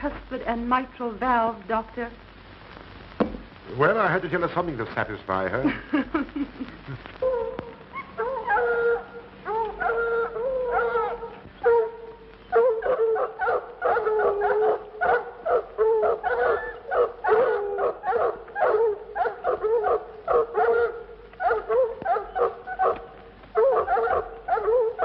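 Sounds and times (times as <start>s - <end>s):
dogs howling: 7.2s - 25.0s
dogs barking: 7.9s - 25.0s.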